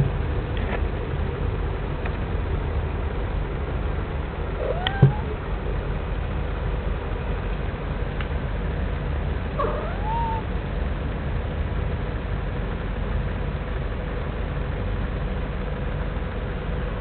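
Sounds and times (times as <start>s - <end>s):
steady low rumble: 0.0s - 17.0s
cat meowing: 4.6s - 5.4s, 9.6s - 10.5s.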